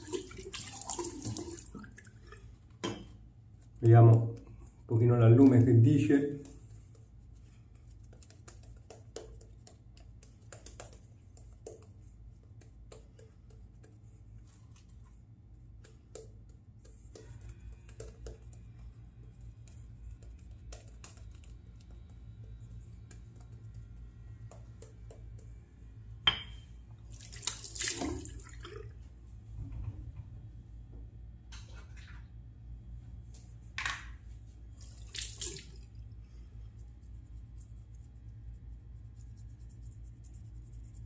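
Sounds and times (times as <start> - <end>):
tap water splashing: 0.0 - 2.1, 27.2 - 28.8
block rubbing on skin: 36.9 - 41.0.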